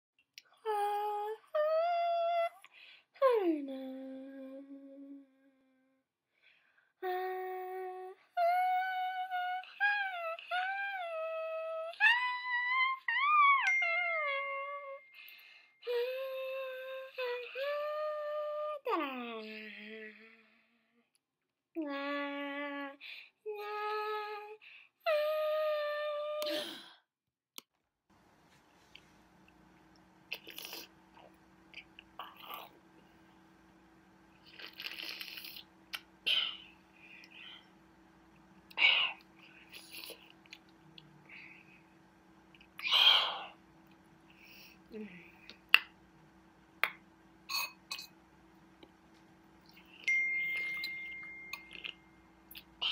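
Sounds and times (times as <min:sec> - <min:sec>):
person humming high tones: 0:00.5 - 0:06.0, 0:07.0 - 0:20.5, 0:21.8 - 0:26.8, 0:50.0 - 0:52.9.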